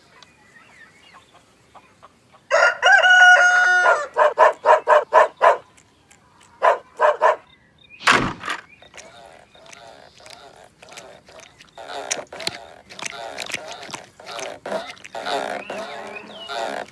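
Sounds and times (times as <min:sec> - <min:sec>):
rooster crowing: 0:02.5 - 0:04.5.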